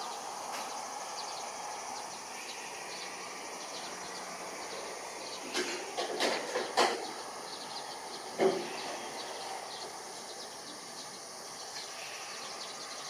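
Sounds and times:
high chirping: 1.1 - 13.0.

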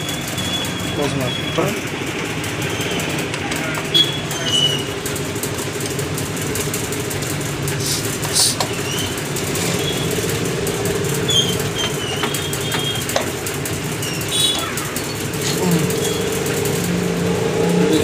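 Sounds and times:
short high squeaks: 3.9 - 5.0, 11.1 - 13.2, 13.9 - 16.4.

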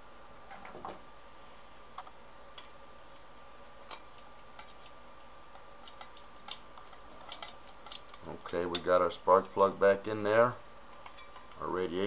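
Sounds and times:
faint hum: 0.0 - 12.0
small metal parts clicking: 3.9 - 9.0.

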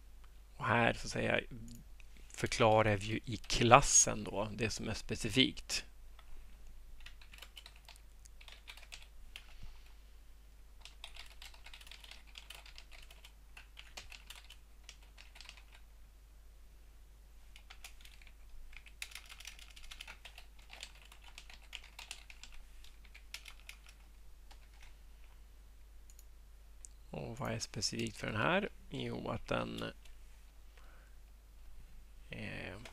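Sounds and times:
typing on computer keyboard: 7.0 - 9.5, 10.8 - 15.8, 17.6 - 24.9.

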